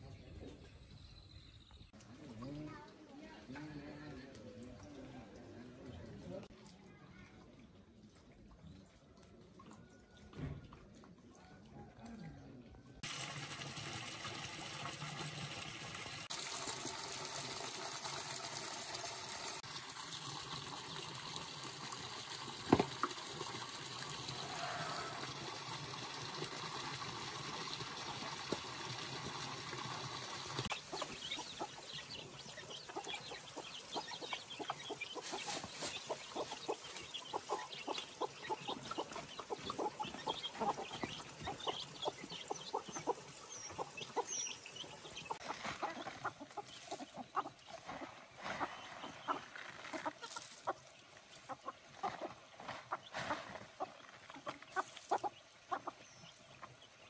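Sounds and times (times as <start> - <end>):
chickens clucking: 30.6 - 57.0.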